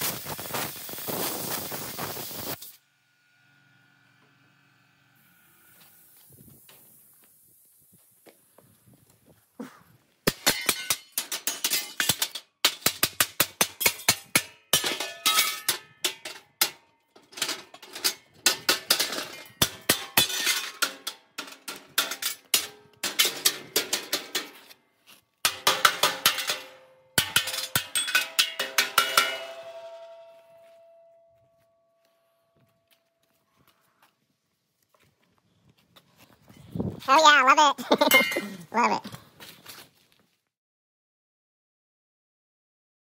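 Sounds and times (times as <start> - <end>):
hammer clanging on steel: 10.3 - 24.7, 25.4 - 32.7, 38.0 - 38.6
steel ringing: 25.5 - 32.6.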